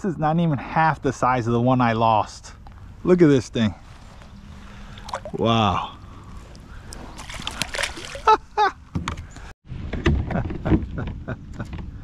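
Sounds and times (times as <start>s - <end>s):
small water splashes: 4.8s - 5.6s, 6.8s - 8.4s.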